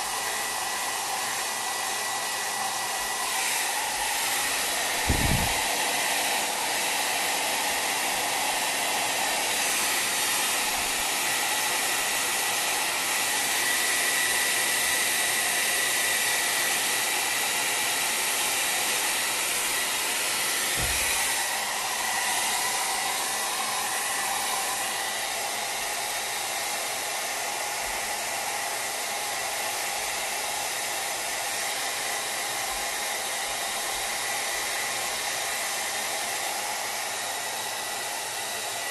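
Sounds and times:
hair dryer blowing: 0.0s - 38.9s
low thump: 5.0s - 5.6s, 20.8s - 21.1s.

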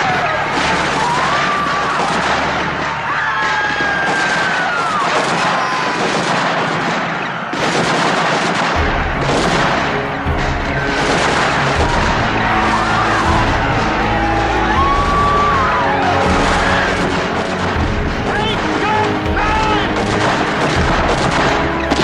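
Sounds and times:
people screaming: 0.0s - 7.6s, 9.8s - 22.0s
rifle fire: 0.0s - 22.0s
low drone: 8.8s - 22.0s.

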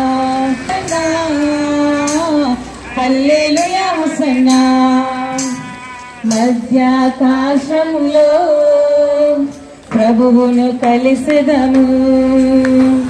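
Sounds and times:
women singing a hymn in unison: 0.0s - 13.0s.

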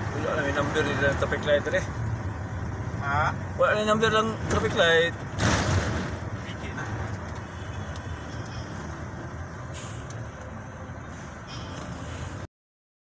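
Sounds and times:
vehicle engine and road rumble: 0.0s - 12.5s
brief hiss: 9.7s - 10.1s.

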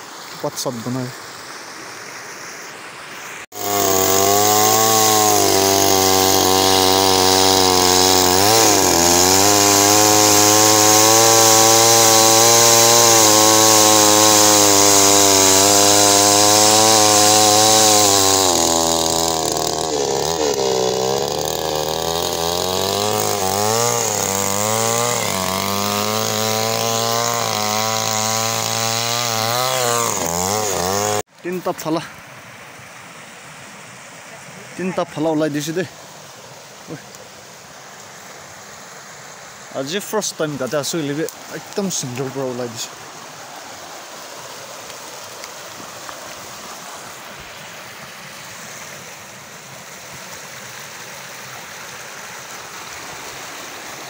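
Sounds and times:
chainsaw cutting log: 3.5s - 31.3s, 39.7s - 54.0s.

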